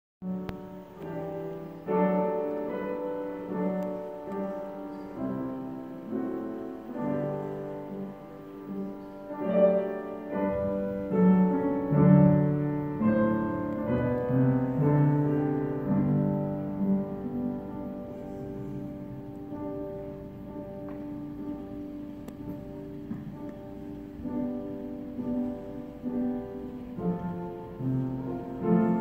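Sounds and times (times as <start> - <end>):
slow classical piano music: 0.2 - 29.0.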